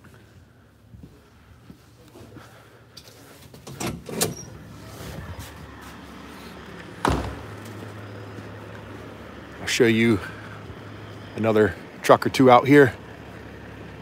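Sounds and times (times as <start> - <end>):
outdoor noise rush: 0.0 - 14.0
door thudding shut: 7.0 - 7.6.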